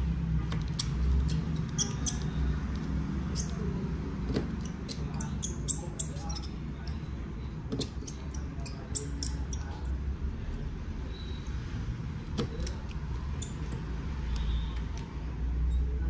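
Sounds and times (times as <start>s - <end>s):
small tools clicking and tapping: 0.5s - 3.6s, 4.3s - 7.1s, 7.7s - 10.0s, 12.4s - 15.1s.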